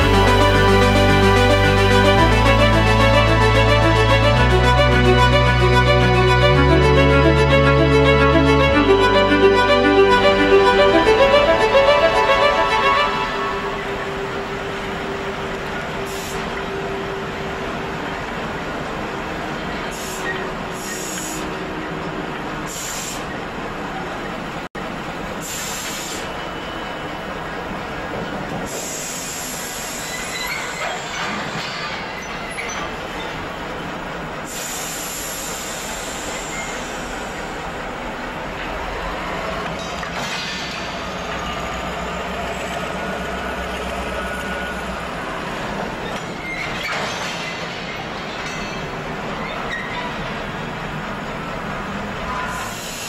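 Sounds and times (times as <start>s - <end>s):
train rolling on rails: 0.0s - 53.0s
hiss: 19.9s - 21.6s, 22.7s - 23.3s, 25.4s - 26.4s, 28.7s - 31.0s, 34.4s - 37.6s, 52.5s - 53.0s
wheels clattering on rails: 29.7s - 34.0s, 38.6s - 53.0s
wheel squeals: 29.8s - 33.4s, 45.9s - 50.4s.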